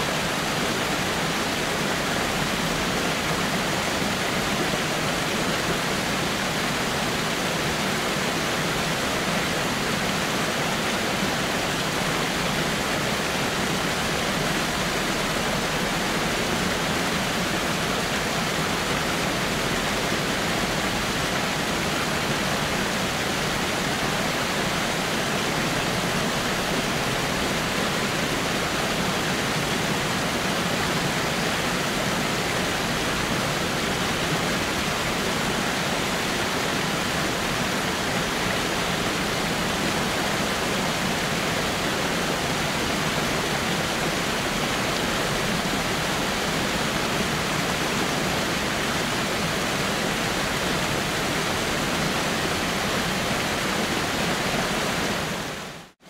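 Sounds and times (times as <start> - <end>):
waterfall rushing onto rocks: 0.0 - 56.0.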